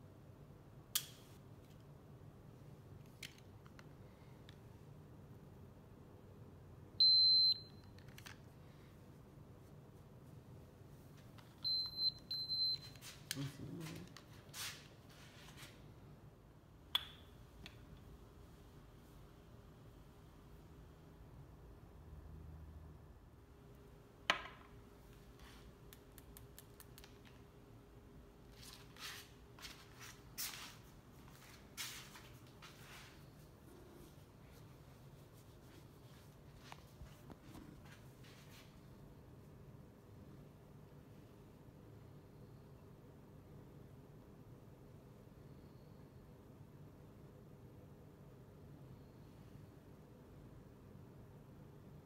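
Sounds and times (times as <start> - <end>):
high-pitched meter beep: 7.0 - 7.8, 11.6 - 13.0
shuffling footsteps on tile: 12.9 - 15.8, 28.5 - 38.8.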